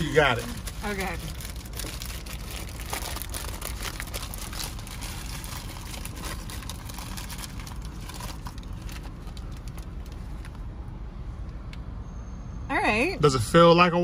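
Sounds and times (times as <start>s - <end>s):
paper wrapper crinkling: 0.0s - 10.6s
low steady rumble: 0.0s - 14.0s.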